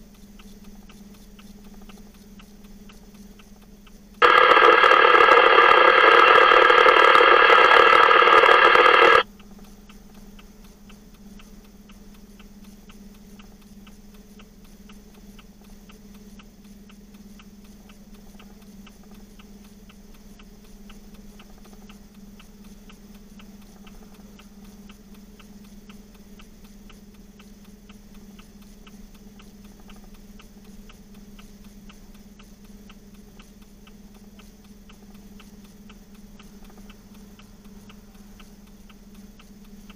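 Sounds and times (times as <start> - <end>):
faint ticking: 0.0 - 39.9
steady low hum: 0.0 - 39.9
loud electronic tone: 4.2 - 9.2.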